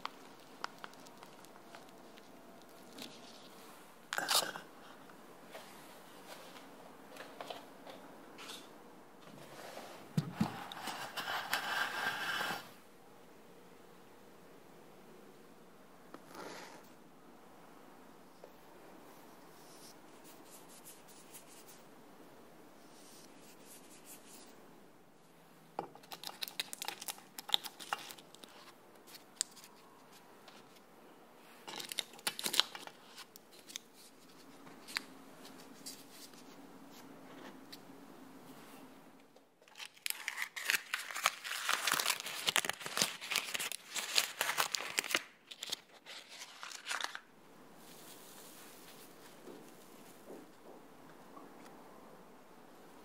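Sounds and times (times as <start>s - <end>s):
paper liner crinkling and tearing: 0.0s - 3.5s, 26.0s - 30.8s, 31.6s - 36.4s, 39.6s - 47.3s
paper rustling: 39.6s - 49.4s.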